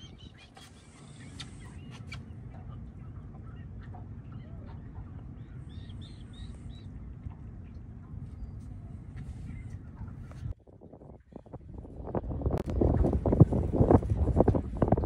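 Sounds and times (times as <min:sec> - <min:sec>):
high chirping bird calls: 0:00.0 - 0:08.8
low wind rumble: 0:00.0 - 0:15.0.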